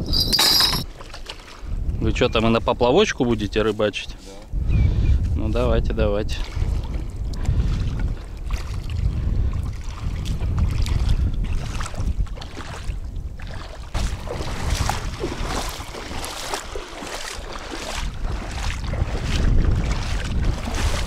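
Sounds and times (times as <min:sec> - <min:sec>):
wind buffeting microphone: 0:00.0 - 0:01.0, 0:01.6 - 0:03.6, 0:04.4 - 0:21.0
feet wading through shallow water: 0:00.8 - 0:02.0, 0:06.2 - 0:21.0.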